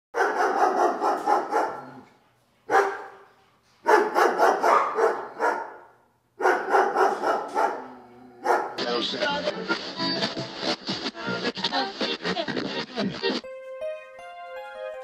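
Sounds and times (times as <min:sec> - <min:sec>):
dog barking: 0:00.2 - 0:02.0, 0:02.7 - 0:08.8.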